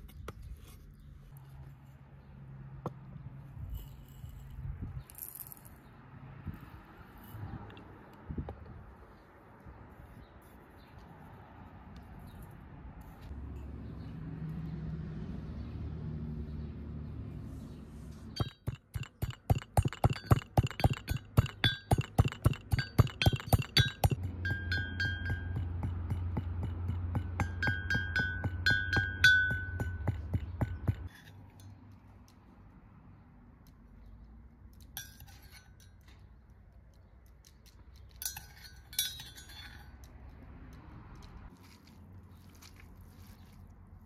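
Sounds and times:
utensil clinking on a vessel: 18.4 - 31.8, 38.1 - 40.0.

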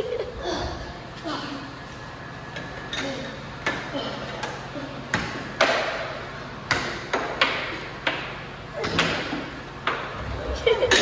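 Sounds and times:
low hum of air blower: 0.0 - 11.0
air hockey puck clacking: 5.2 - 6.1, 6.7 - 10.1.

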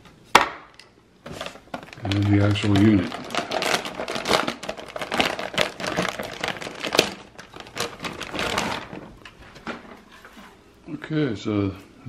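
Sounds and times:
plastic bag crinkling: 1.2 - 10.0.

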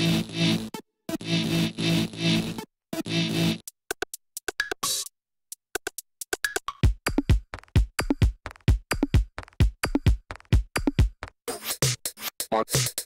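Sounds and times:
clicky percussion loop: 3.6 - 5.1, 5.7 - 13.0
kick drum beat: 6.8 - 11.4.

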